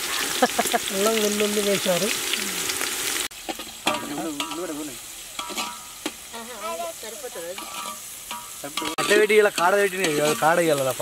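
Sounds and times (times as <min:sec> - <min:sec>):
onions sizzling in hot oil: 0:00.0 - 0:11.0
metal spoon scraping a pot: 0:05.4 - 0:06.1, 0:07.5 - 0:10.9.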